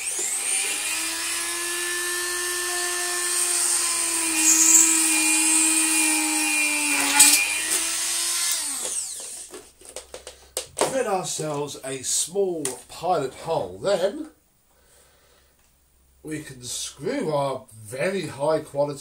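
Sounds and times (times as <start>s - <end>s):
rotary tool drilling plastic: 0.0s - 9.6s.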